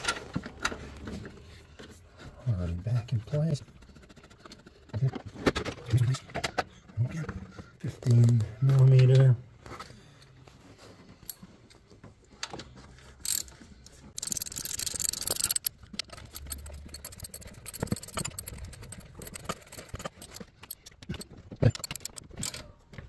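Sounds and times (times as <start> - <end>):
socket ratchet clicking: 13.2 - 13.5, 14.2 - 22.6.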